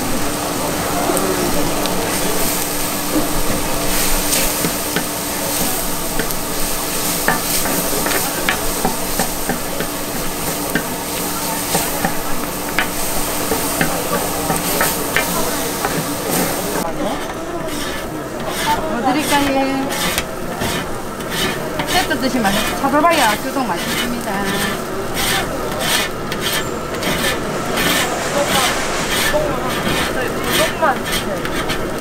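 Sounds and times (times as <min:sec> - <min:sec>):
food sizzling on a griddle: 0:00.0 - 0:32.0
metal spatulas scraping griddle: 0:02.2 - 0:32.0.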